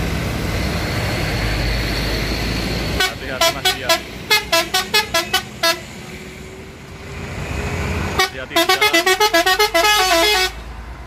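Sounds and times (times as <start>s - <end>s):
diesel engine revving: 0.0s - 11.0s
musical air horn tune: 3.0s - 5.8s, 8.2s - 10.6s.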